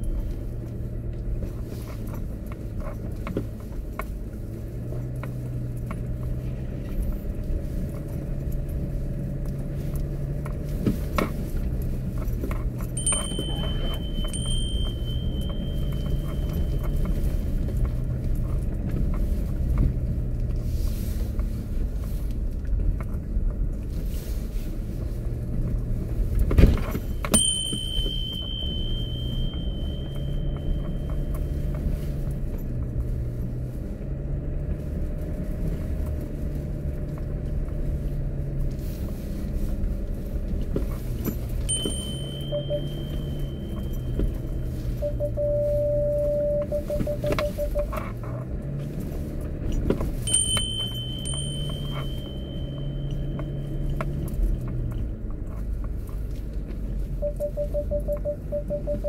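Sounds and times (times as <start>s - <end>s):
engine and tyres droning: 0.0s - 59.0s
thin high squeal: 27.4s - 32.2s.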